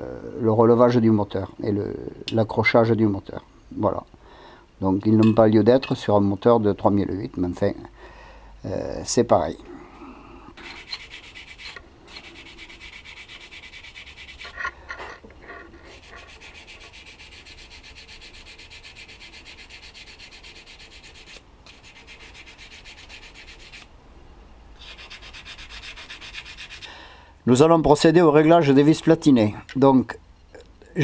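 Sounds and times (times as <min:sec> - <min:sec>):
rubbing or scraping strokes: 0:10.6 - 0:23.9, 0:24.8 - 0:26.9.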